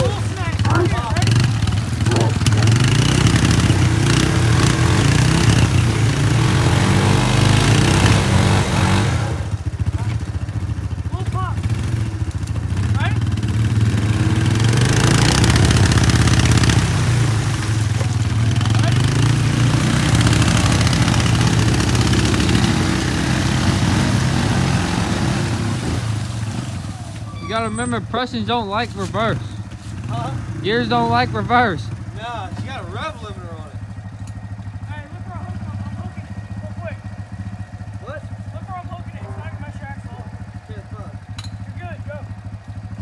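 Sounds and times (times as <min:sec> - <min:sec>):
loud rushing through mud: 0:00.0 - 0:10.2, 0:11.6 - 0:27.3
quad bike engine at high revs: 0:00.0 - 0:27.0, 0:28.5 - 0:34.0, 0:34.8 - 0:43.0.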